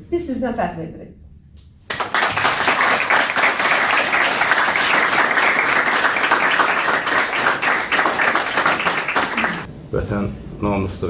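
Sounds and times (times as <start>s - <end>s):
audience applauding: 1.9s - 9.7s.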